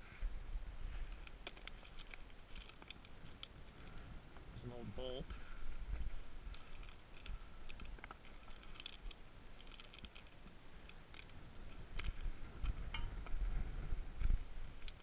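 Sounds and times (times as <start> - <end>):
gravel crunching and clicking: 0.8 - 15.0
wind rumble on microphone: 10.4 - 15.0.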